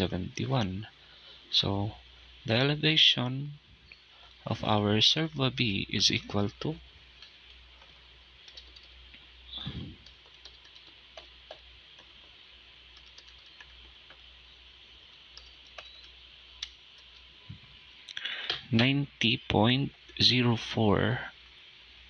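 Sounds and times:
steady low hiss: 0.0 - 22.0
key clicks: 15.4 - 17.3.

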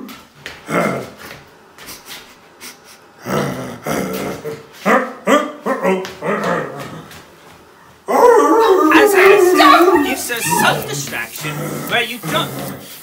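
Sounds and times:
dog whining and yelping: 8.1 - 11.0.

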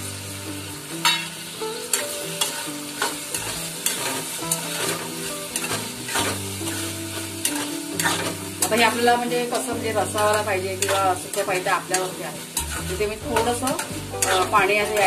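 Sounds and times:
frying sizzle: 0.0 - 15.0
spoon scraping metal pan: 2.0 - 9.0, 10.1 - 15.0.

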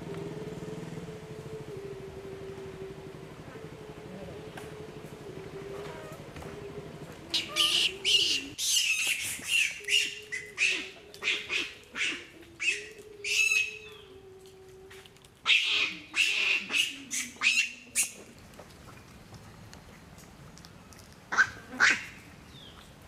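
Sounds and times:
macaques screeching: 7.3 - 13.8.

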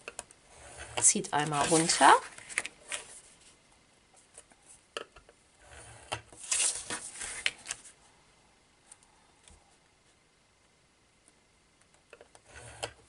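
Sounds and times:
paper rustling: 1.4 - 3.6, 6.4 - 8.0.

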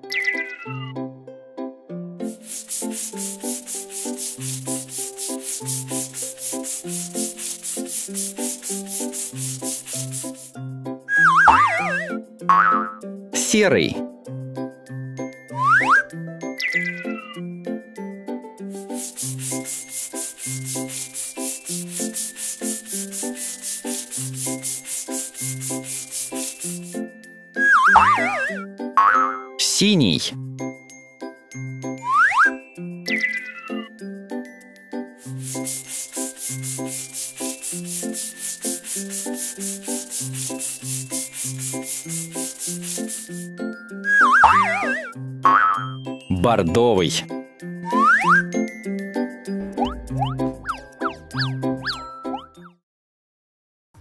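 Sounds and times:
scratchy paintbrush strokes: 2.2 - 10.6, 11.3 - 12.2, 18.7 - 28.6, 35.2 - 45.2
children's music with bass: 2.2 - 14.0, 15.1 - 30.8, 31.5 - 52.8.

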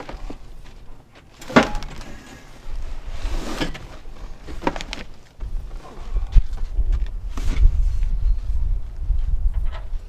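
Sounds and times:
boxes scraping on wooden pallet: 0.0 - 5.1.

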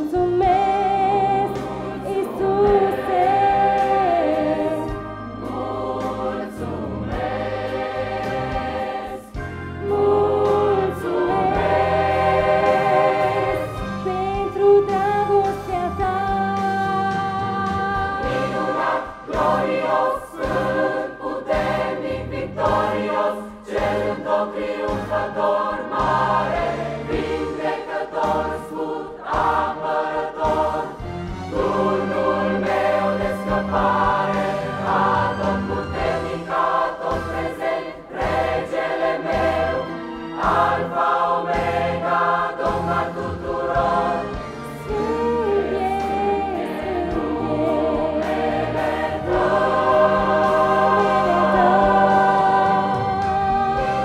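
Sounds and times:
choir singing a hymn: 0.0 - 54.0.

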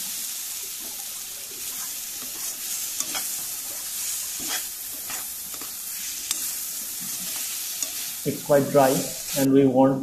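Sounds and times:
curry sizzling in a pan: 0.0 - 9.7
metal spatula scraping pan: 1.7 - 9.5.

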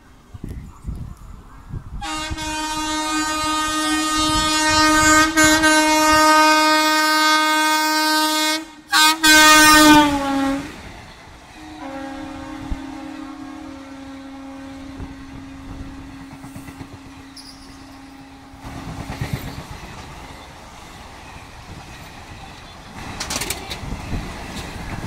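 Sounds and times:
train horn blasts: 2.0 - 10.9, 11.5 - 19.0
train wheels rumbling and clattering: 14.4 - 25.0.

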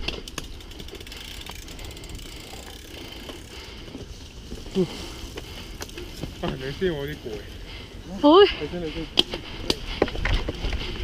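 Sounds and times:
bike clicks and rattles: 0.0 - 11.0
bike tyres rumbling on dirt: 0.0 - 11.0.

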